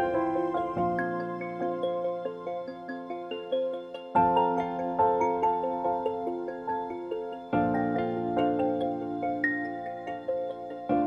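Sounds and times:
gentle background music: 0.0 - 11.0.

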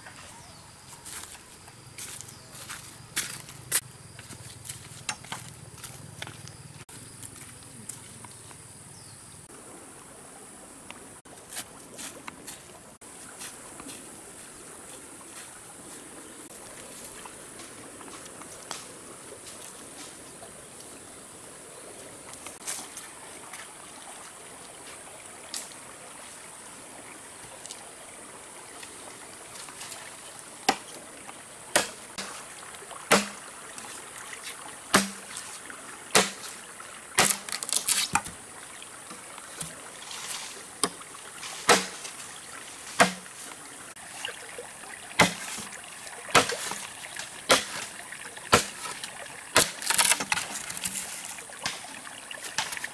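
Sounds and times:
chopping blows on wood: 31.7 - 32.4, 33.1 - 33.4, 34.9 - 35.3, 36.1 - 36.5, 37.2 - 38.3, 41.7 - 42.1, 43.0 - 43.3, 45.2 - 45.6, 46.3 - 46.8.

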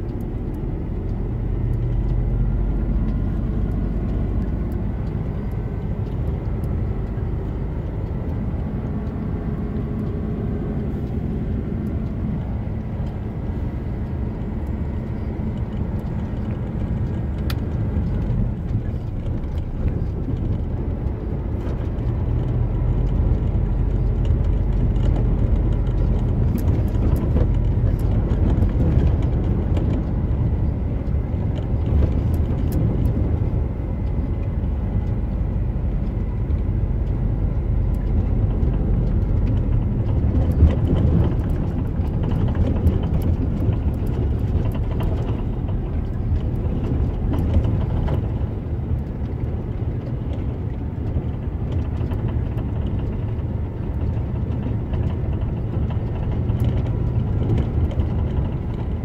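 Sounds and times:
diesel engine drone: 0.0 - 59.0
tyres rumbling on gravel: 15.2 - 59.0.

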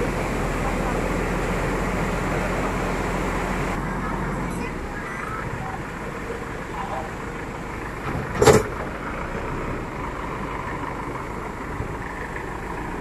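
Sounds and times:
water rushing through gate: 0.0 - 3.8
diesel engine running: 0.0 - 13.0.

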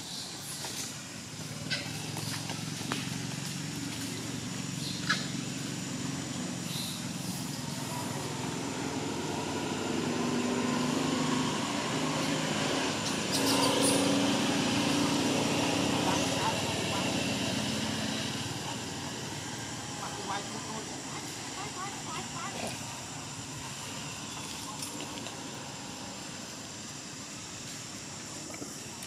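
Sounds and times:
engine running: 0.6 - 29.0.

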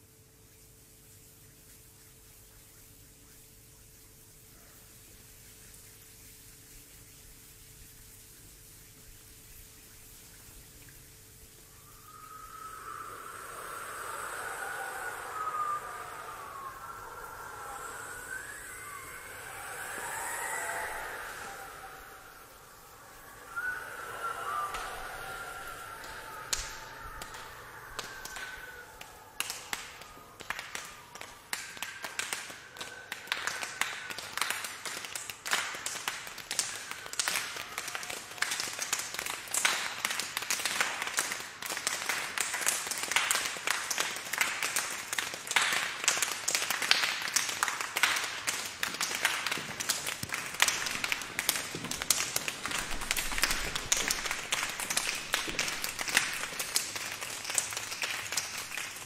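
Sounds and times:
hands clapping: 11.9 - 59.0.

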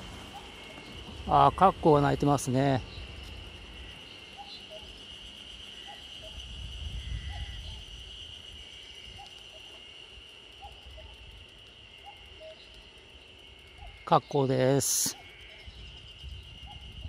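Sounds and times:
cuckoo calling: 0.0 - 1.6, 4.0 - 5.1, 10.5 - 11.3, 12.0 - 12.9.

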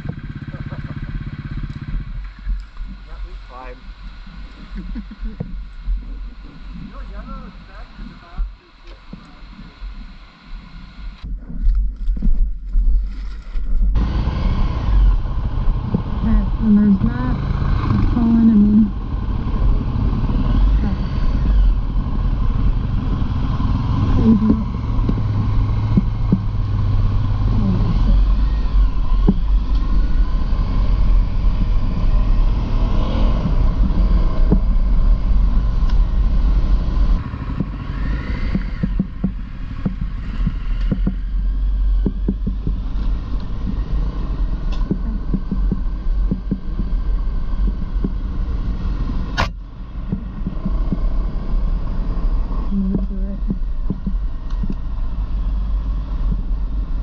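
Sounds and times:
motorcycle engine rumbling: 0.0 - 57.0
sharp click: 49.3 - 50.2.

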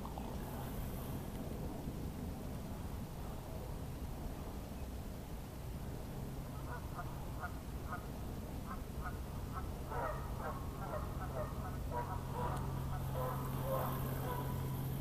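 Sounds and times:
ducks quacking: 8.7 - 14.5.

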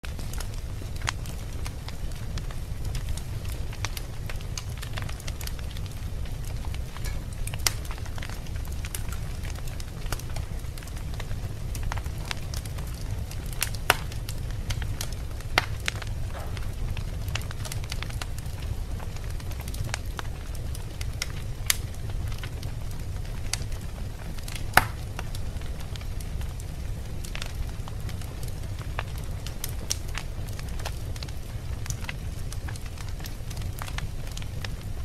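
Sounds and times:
fire crackling and popping: 0.0 - 35.0
fire flames rumbling: 0.0 - 35.0.

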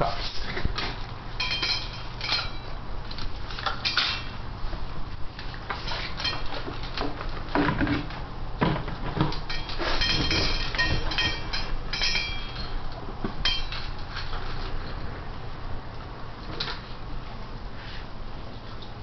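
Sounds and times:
dog bowls clinking and clattering: 0.5 - 2.8, 5.7 - 15.0
ringing clinks: 1.4 - 2.7, 9.5 - 12.8.

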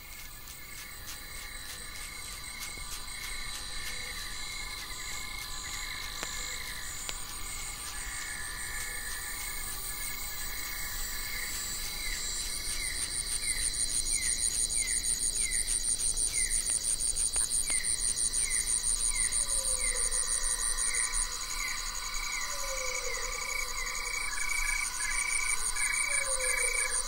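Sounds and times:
insects pulsing high trill: 0.0 - 27.0.

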